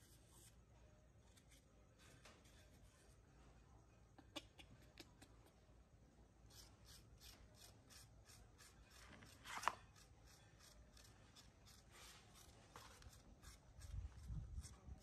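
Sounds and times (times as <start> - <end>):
metal spoon scraping apple: 6.5 - 15.0.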